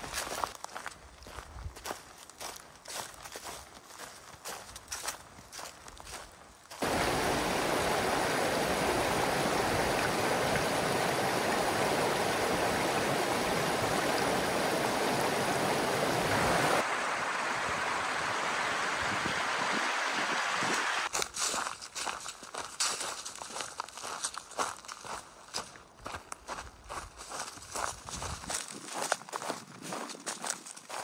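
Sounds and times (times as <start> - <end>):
running water rushing: 6.7 - 21.1.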